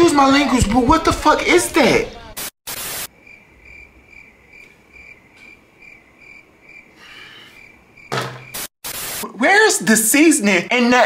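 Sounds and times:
crickets chirping: 2.8 - 8.7.

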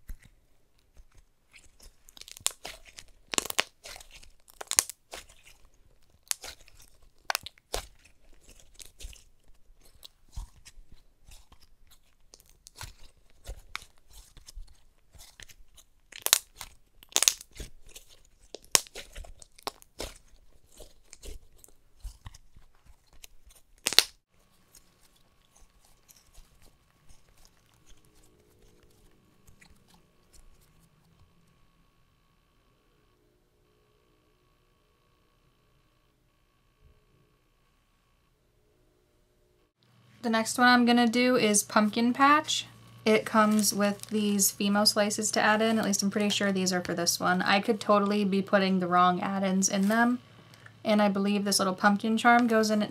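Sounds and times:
slime clicking and popping: 1.6 - 24.2.

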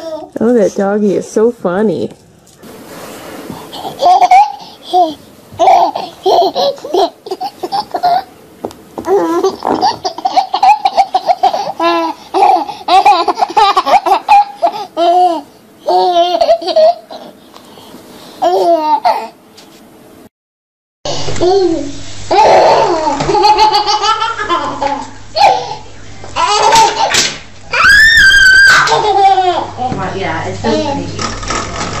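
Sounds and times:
small child laughing: 3.7 - 8.4, 9.0 - 17.4, 18.4 - 19.4, 21.4 - 30.0.

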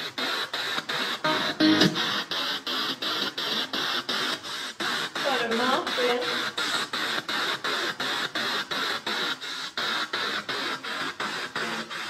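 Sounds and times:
choppy radio static: 1.2 - 2.4.

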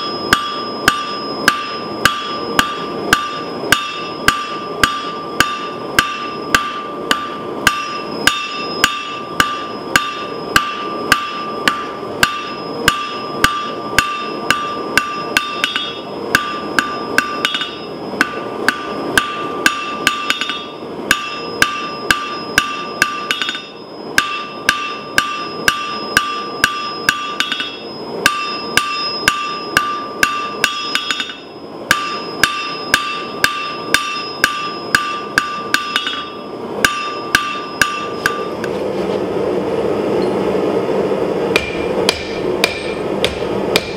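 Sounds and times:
anvil ringing: 0.0 - 38.6, 41.5 - 43.9
hammer striking steel on anvil: 0.0 - 38.7, 41.5 - 43.9.

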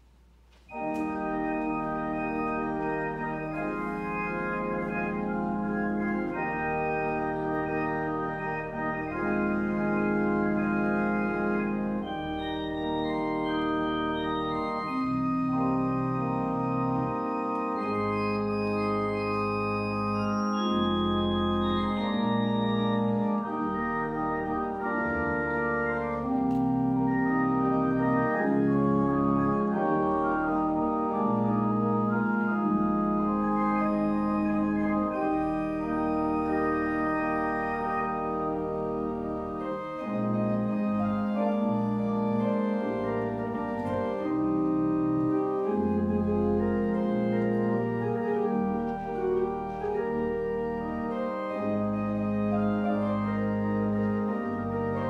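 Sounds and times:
church organ chords: 0.0 - 55.0.

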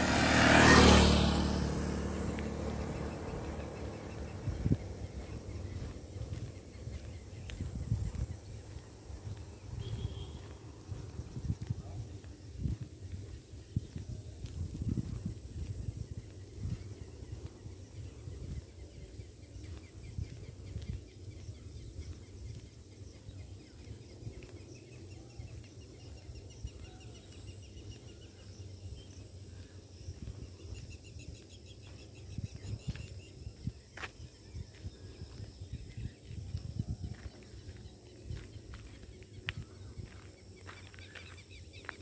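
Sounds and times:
birds calling: 0.0 - 12.4, 37.1 - 42.0
footsteps on paved road: 0.2 - 42.0.

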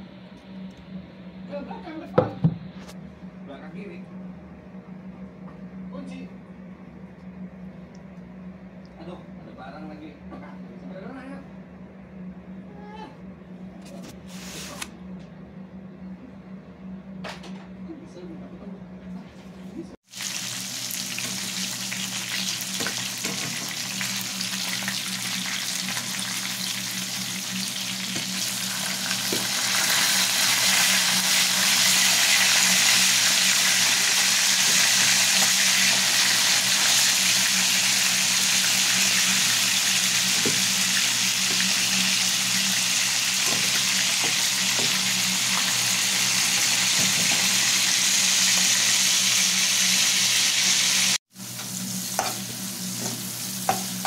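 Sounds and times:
fish sizzling in hot oil: 20.0 - 54.0.

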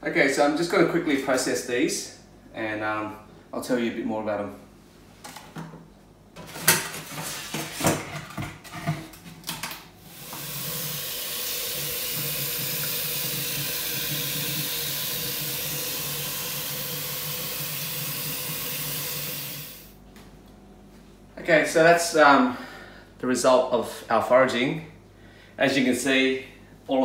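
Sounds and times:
tap running into sink: 10.2 - 19.4.

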